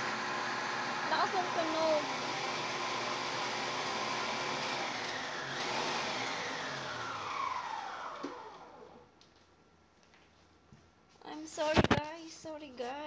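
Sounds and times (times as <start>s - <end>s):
electric appliance motor whirring: 0.0s - 9.0s.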